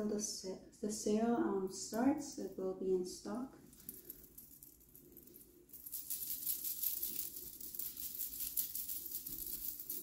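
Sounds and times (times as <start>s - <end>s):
shell beads clicking and jingling: 3.7s - 10.0s.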